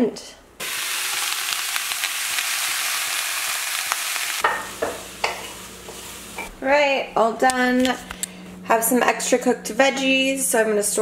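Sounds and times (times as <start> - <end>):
vegetables sizzling in a pan: 0.6 - 6.7.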